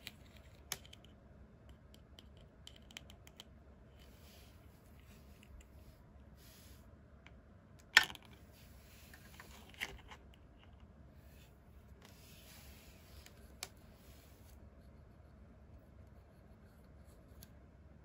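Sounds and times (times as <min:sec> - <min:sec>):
soft handling rustle: 0:08.3 - 0:17.6.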